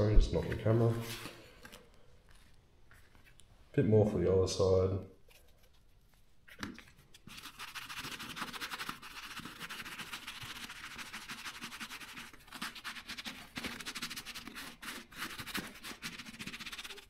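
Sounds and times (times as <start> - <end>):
sponge scrubbing leather: 7.3 - 17.0.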